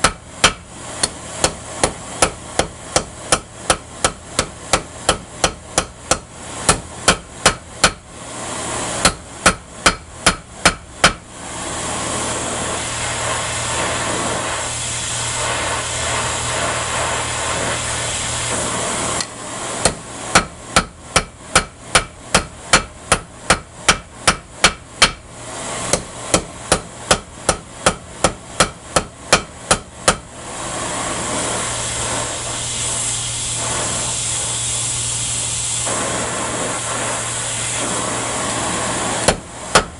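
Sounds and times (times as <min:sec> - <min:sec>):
steady hiss: 0:30.5 - 0:39.3.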